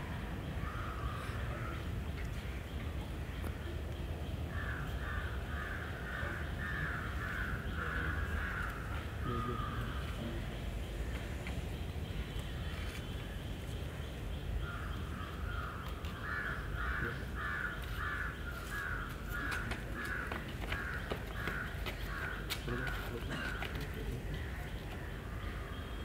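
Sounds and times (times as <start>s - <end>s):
crow cawing: 4.5s - 10.2s, 14.6s - 24.6s.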